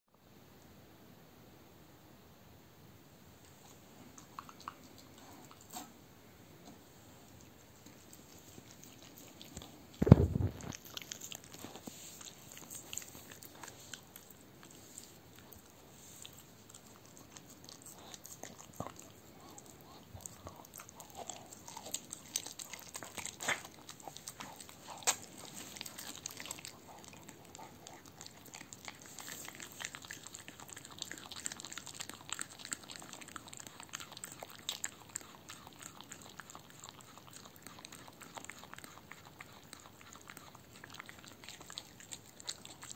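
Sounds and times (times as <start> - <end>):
dog chewing: 3.4 - 6.0, 6.6 - 42.9
dull thump: 10.0 - 10.6.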